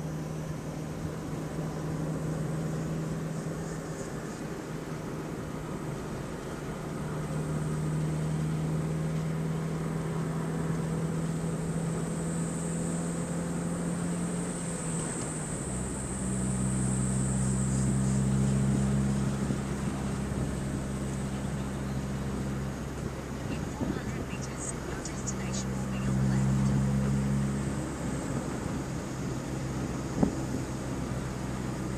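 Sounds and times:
car engine hum: 0.0 - 31.9
tyre and wind noise: 28.1 - 31.1.

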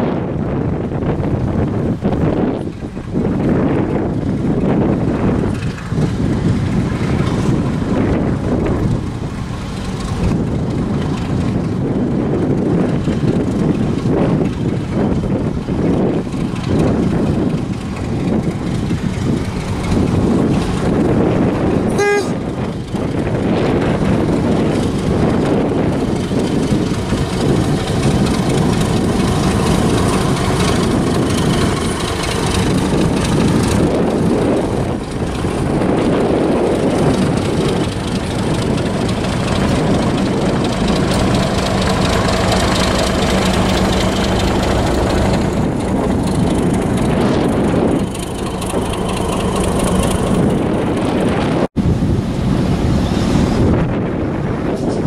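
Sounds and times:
diesel locomotive engine: 0.0 - 55.0
train horn toot: 21.9 - 22.5.

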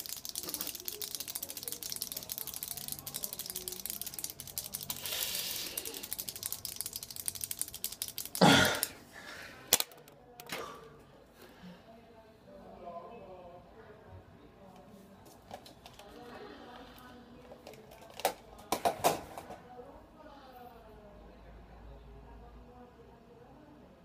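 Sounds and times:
pens clicking rapidly: 0.0 - 9.0, 9.7 - 10.6.

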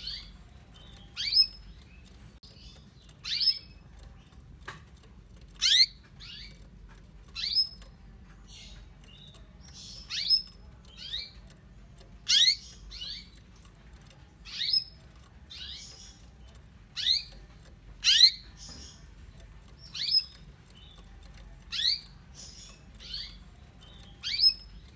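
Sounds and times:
canary chirping: 0.0 - 24.9.

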